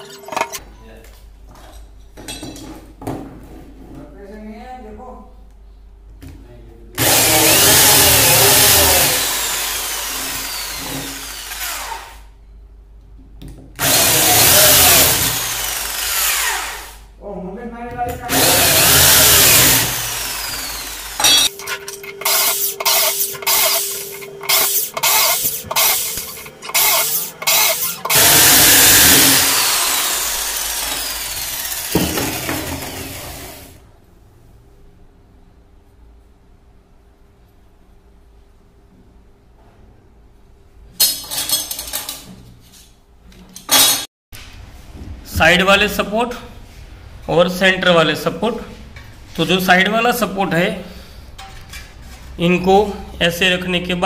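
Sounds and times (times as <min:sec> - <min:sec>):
electric drill boring metal: 0:07.0 - 0:12.2, 0:13.8 - 0:17.0, 0:18.3 - 0:33.7.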